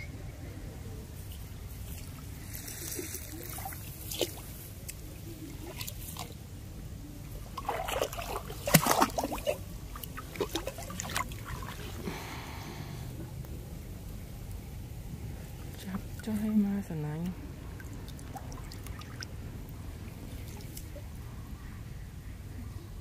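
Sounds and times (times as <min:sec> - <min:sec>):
water trickling and splashing: 0:01.3 - 0:12.7, 0:15.4 - 0:21.3
small sharp splashes: 0:01.8 - 0:06.4, 0:07.4 - 0:12.2, 0:15.7 - 0:21.0
steady low rumble: 0:09.6 - 0:23.0.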